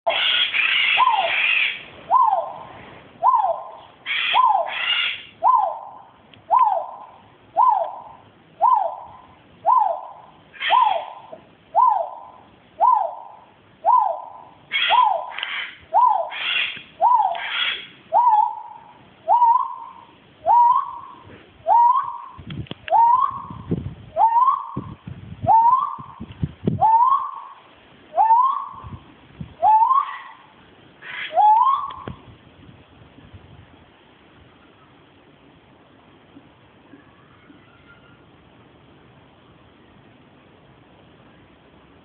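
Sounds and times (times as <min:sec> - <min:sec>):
bird whooping call: 0:00.1 - 0:26.2, 0:26.8 - 0:29.0, 0:29.6 - 0:32.2.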